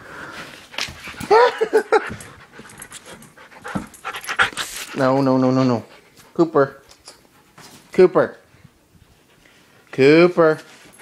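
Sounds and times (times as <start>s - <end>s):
dog panting: 0.4s - 7.9s, 8.7s - 10.0s.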